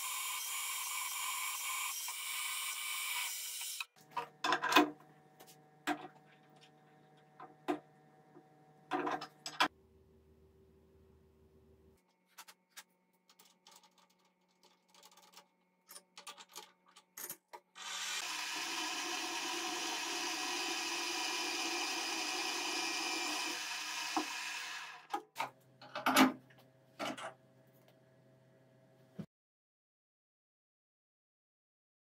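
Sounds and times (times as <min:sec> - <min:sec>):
drill bit cutting steel: 0:00.0 - 0:03.9, 0:17.8 - 0:25.1.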